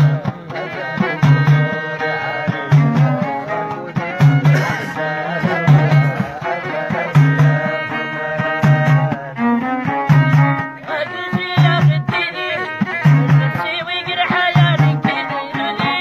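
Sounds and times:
frame drums beating: 0.0s - 16.0s
lute: 0.0s - 16.0s
violin melody: 5.0s - 16.0s.

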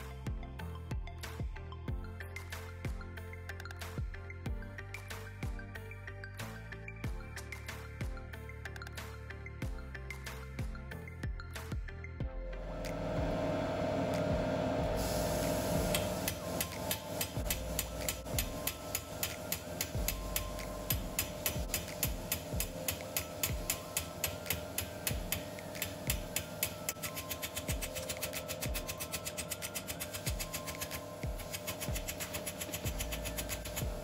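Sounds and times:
hammer striking sheet steel: 14.9s - 34.0s.

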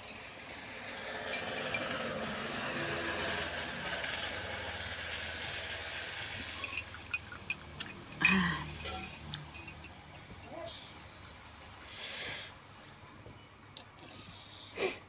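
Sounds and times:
spoon clinking against glass: 6.6s - 10.0s
soft hiss of drinking: 11.8s - 12.6s.

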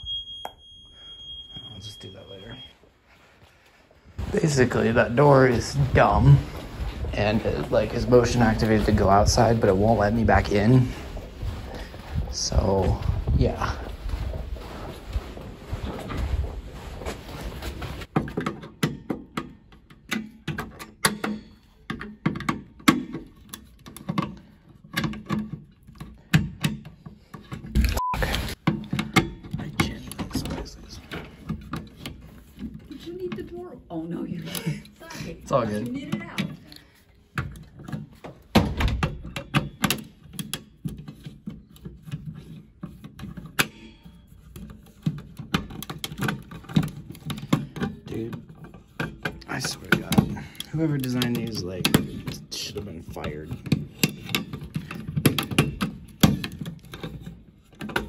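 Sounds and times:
handling noise: 2.8s - 26.3s.

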